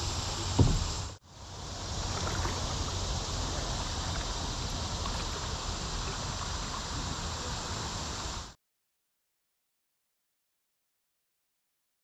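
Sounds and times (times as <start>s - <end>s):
moving water hiss: 0.0s - 8.6s.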